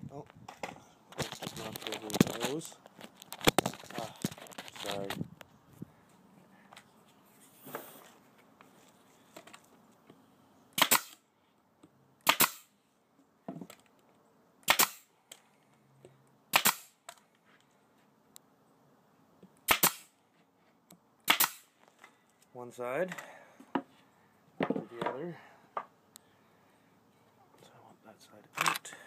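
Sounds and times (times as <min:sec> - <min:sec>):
nail gun shots: 0:10.8 - 0:11.2, 0:12.2 - 0:12.7, 0:14.6 - 0:15.1, 0:16.5 - 0:17.0, 0:19.7 - 0:20.1, 0:21.2 - 0:21.7.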